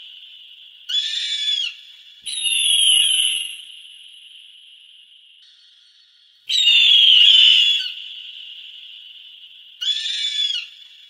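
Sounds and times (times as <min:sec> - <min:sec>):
faint steady high hiss: 0:00.0 - 0:11.0
bird of prey calling: 0:00.9 - 0:03.5, 0:06.5 - 0:08.2, 0:09.8 - 0:10.8.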